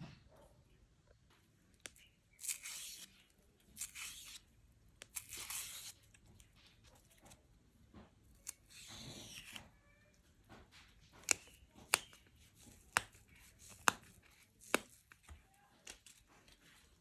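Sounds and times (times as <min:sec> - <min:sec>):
tearing rustle: 0:02.3 - 0:04.5, 0:05.1 - 0:07.3.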